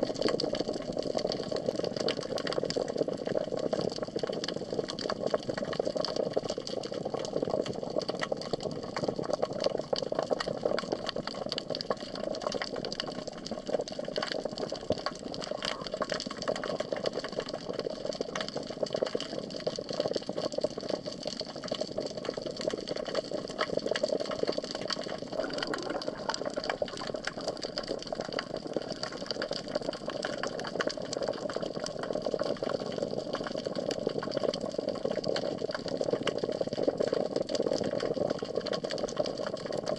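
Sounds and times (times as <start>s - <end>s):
fine crackling clicks: 9.9s - 33.6s
muffled underwater hum: 25.2s - 27.4s.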